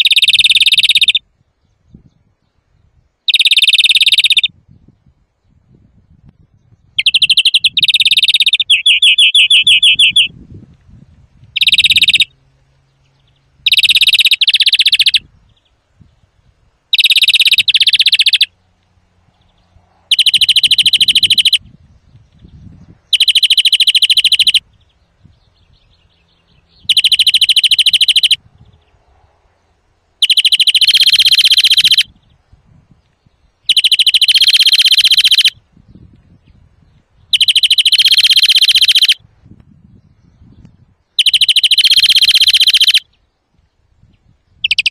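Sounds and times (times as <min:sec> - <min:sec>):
finch singing trills: 0:00.0 - 0:01.2, 0:03.3 - 0:04.5, 0:06.6 - 0:10.3, 0:11.5 - 0:12.3, 0:13.0 - 0:15.8, 0:16.9 - 0:18.6, 0:19.4 - 0:28.9, 0:30.2 - 0:32.4, 0:33.2 - 0:39.2, 0:39.9 - 0:43.2, 0:44.5 - 0:44.9.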